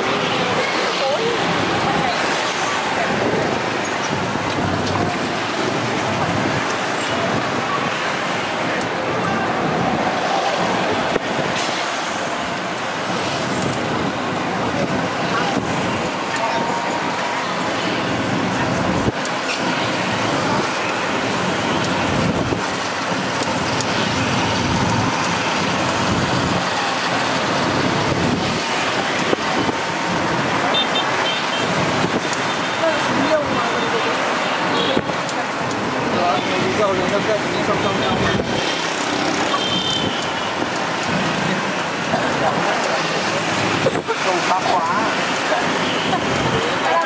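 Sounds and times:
cars and motorbikes rushing: 0.0s - 47.0s
city street traffic: 0.0s - 47.0s
wind on microphone: 22.0s - 22.8s, 27.7s - 30.5s.

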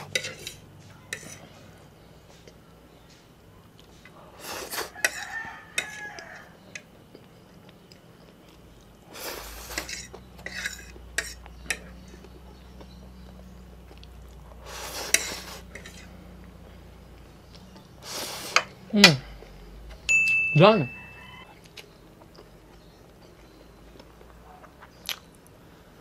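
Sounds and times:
fork scraping ceramic plate: 0.0s - 1.5s, 4.6s - 6.0s, 9.7s - 11.9s, 14.8s - 16.1s
chewing: 3.6s - 18.0s, 21.5s - 25.6s.

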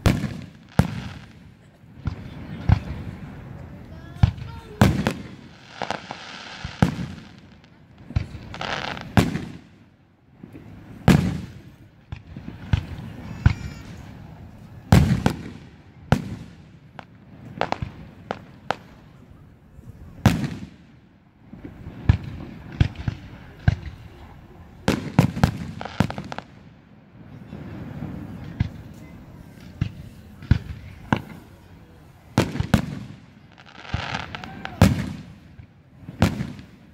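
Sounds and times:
small firework pops: 0.0s - 3.0s, 3.8s - 9.8s, 10.6s - 14.0s, 14.6s - 19.0s, 21.6s - 24.1s, 28.4s - 31.5s
fireworks bursting with echo: 0.0s - 36.9s.

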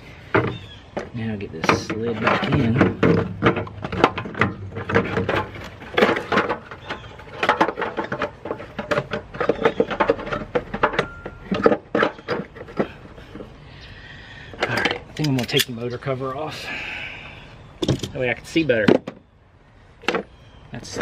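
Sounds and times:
metal heat shield rattling: 1.4s - 13.5s.

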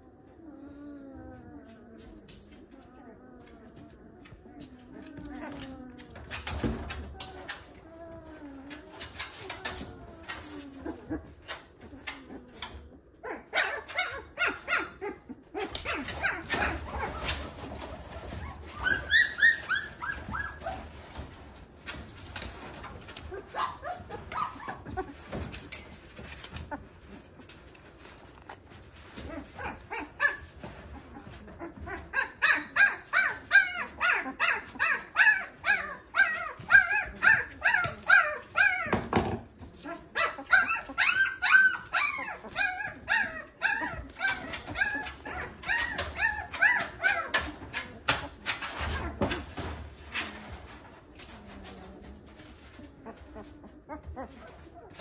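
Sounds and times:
puppies squealing and whimpering: 2.9s - 21.3s, 22.3s - 27.3s, 28.0s - 50.3s, 51.2s - 55.0s.

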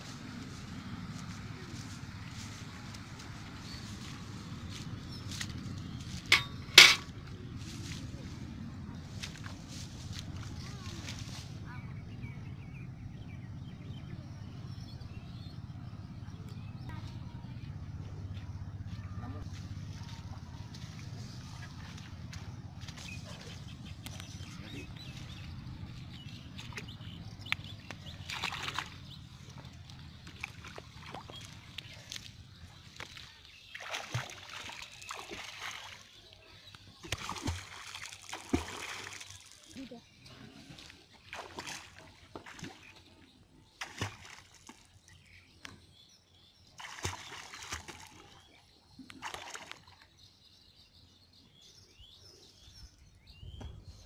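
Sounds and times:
water sloshing and splashing: 0.0s - 11.6s, 19.9s - 45.1s, 46.7s - 50.2s
birds chirping: 0.0s - 54.0s
person wading in water: 20.6s - 45.1s, 46.7s - 50.1s.

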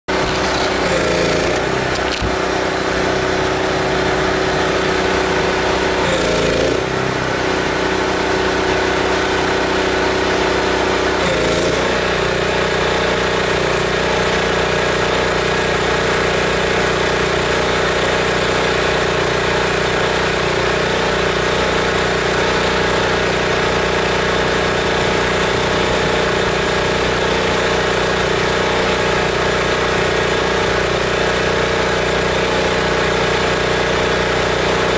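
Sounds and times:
pressure washer engine running: 0.0s - 34.9s.

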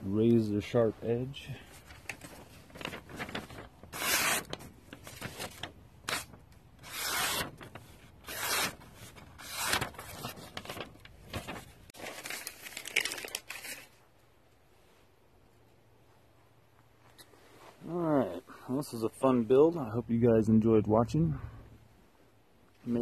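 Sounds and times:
paper rustling: 1.6s - 14.0s
knife slicing paper: 3.2s - 10.9s.

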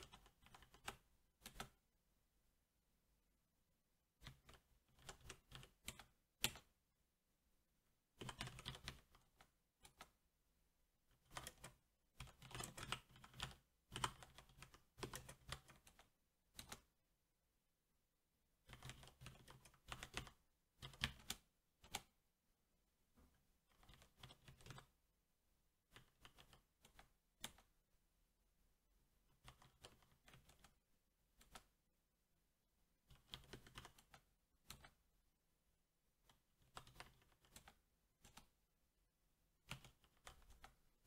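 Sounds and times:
mechanical keyboard typing: 0.0s - 1.8s, 4.2s - 6.7s, 8.2s - 10.2s, 11.2s - 16.9s, 18.6s - 22.2s, 23.7s - 25.0s, 25.9s - 27.7s, 29.3s - 30.8s, 33.1s - 35.0s, 36.3s - 38.5s, 39.6s - 40.8s.

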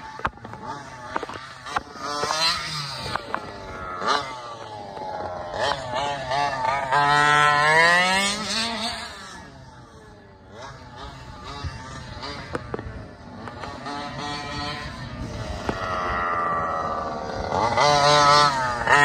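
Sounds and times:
rc truck engine revving: 0.0s - 19.0s.

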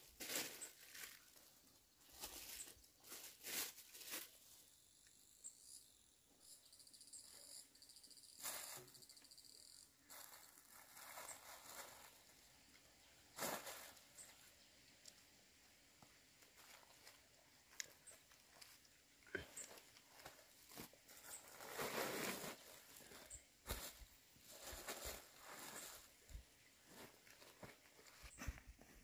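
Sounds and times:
plastic bags crinkling: 0.0s - 1.4s, 2.2s - 4.4s, 10.1s - 12.4s, 19.3s - 26.2s
faint high insect trilling: 4.1s - 12.2s.

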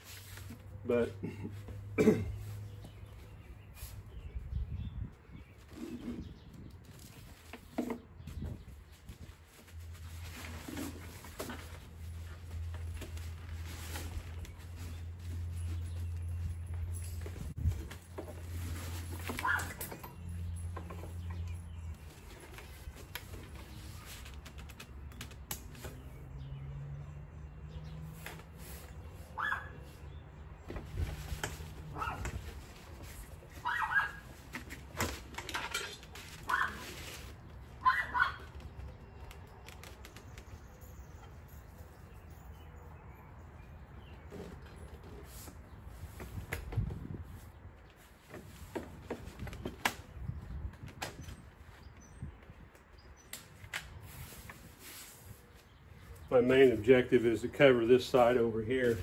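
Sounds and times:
nylon cover rustling and scraping: 0.0s - 0.7s, 5.5s - 16.6s, 17.3s - 19.8s, 30.8s - 37.8s.

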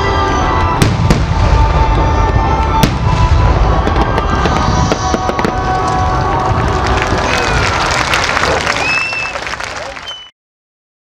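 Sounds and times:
crackling firework stars: 0.3s - 10.3s
firework shells bursting with bangs: 0.8s - 6.4s.

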